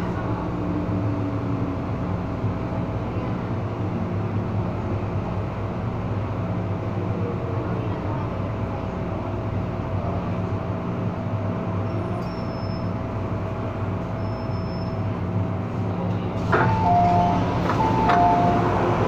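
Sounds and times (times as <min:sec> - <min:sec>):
electric train running hum: 0:00.0 - 0:19.0
train doors opening: 0:16.0 - 0:19.0.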